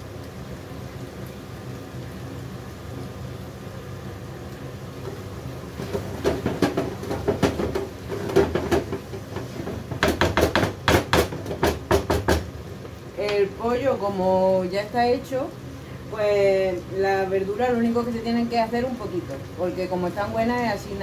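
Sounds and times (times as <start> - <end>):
frying sizzle: 0.0 - 21.0
wooden spatula knocking pan: 5.8 - 12.5.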